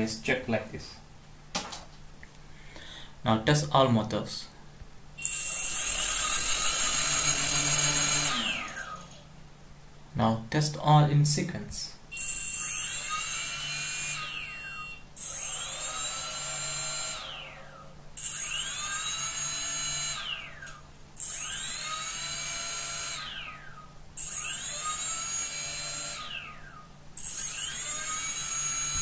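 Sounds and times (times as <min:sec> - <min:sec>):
drone motors whining: 0:05.2 - 0:09.3, 0:12.2 - 0:29.0.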